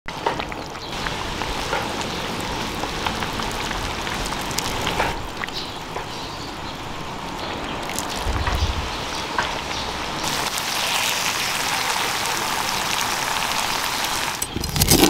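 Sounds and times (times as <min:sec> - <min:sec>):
broth bubbling and hissing: 0:00.4 - 0:15.0
low rumble: 0:08.0 - 0:10.2.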